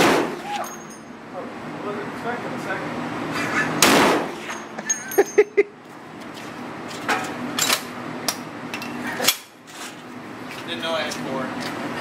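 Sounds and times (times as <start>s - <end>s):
rifle shot: 0.0s - 0.4s, 3.8s - 4.4s
metallic clinks: 0.6s - 1.2s, 4.5s - 5.6s.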